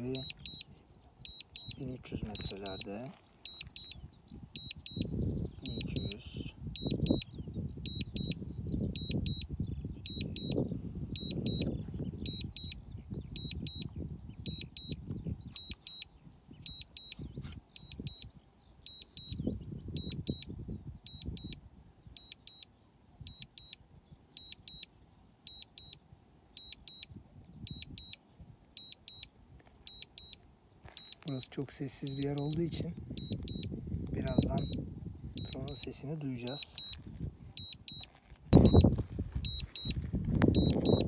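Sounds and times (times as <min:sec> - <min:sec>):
remote controller beeping: 0:00.0 - 0:04.0, 0:04.6 - 0:07.3, 0:07.9 - 0:08.4, 0:10.1 - 0:10.6, 0:11.2 - 0:12.8, 0:14.5 - 0:18.3, 0:18.9 - 0:20.5, 0:23.3 - 0:23.8, 0:26.6 - 0:27.1, 0:28.8 - 0:29.3, 0:29.9 - 0:30.4, 0:33.2 - 0:34.8, 0:35.4 - 0:35.8, 0:36.4 - 0:37.0, 0:37.6 - 0:41.0.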